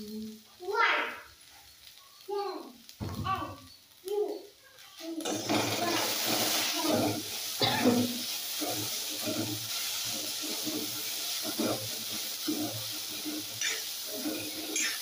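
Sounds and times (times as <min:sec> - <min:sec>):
vegetables sizzling in a pan: 0:00.0 - 0:15.0
spatula scraping a pan: 0:05.2 - 0:15.0.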